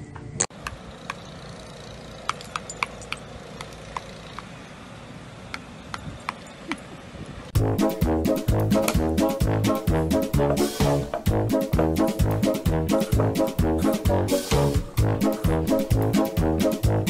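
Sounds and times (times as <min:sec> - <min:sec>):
wind spinner metallic clicks: 0:00.4 - 0:04.7.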